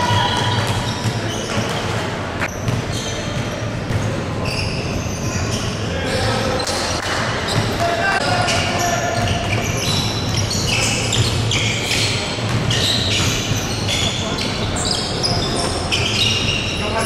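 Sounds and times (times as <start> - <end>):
ball bouncing: 0.0 - 4.2, 9.2 - 16.6
sneakers squeaking on floor: 0.0 - 17.0
voices of players and crowd: 0.0 - 17.0.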